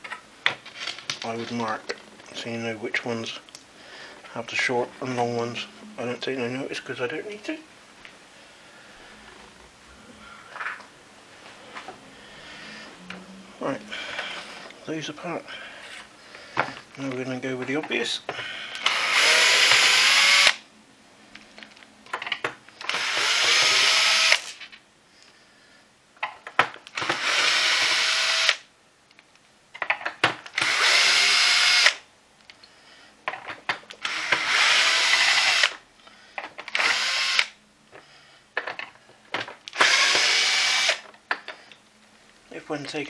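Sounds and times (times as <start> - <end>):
cordless drill whirring: 18.8 - 20.6, 22.8 - 24.5, 26.9 - 28.7, 30.5 - 32.0, 34.0 - 35.8, 36.7 - 37.6, 39.7 - 41.1.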